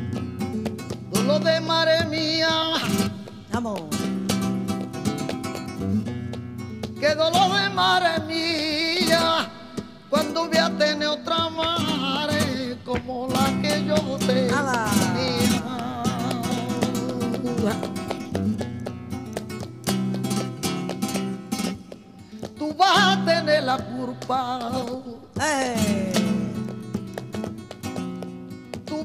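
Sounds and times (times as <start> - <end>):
flamenco guitar: 0.0 - 29.0
woman singing melismatic lines: 23.2 - 26.7.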